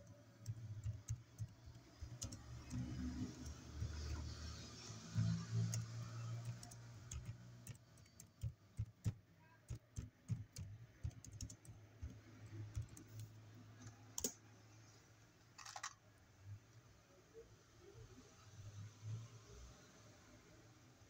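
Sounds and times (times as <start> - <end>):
keyboard typing: 0.0 - 14.4, 15.6 - 16.0.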